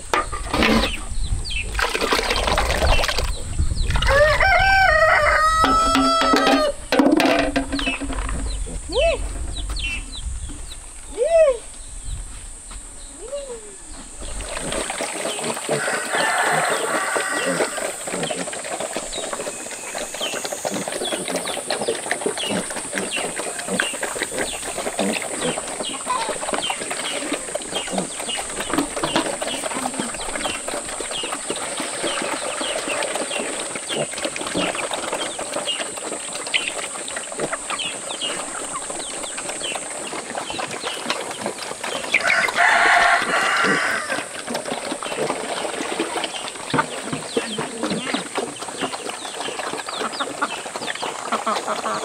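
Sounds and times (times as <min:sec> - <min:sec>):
pigs chewing and slurping: 0:00.0 - 0:13.1, 0:13.8 - 0:52.0
chickens clucking: 0:03.9 - 0:10.8, 0:13.7 - 0:52.0
rooster crowing: 0:04.0 - 0:06.8, 0:15.7 - 0:18.0, 0:42.2 - 0:44.3
chicks peeping: 0:13.9 - 0:52.0.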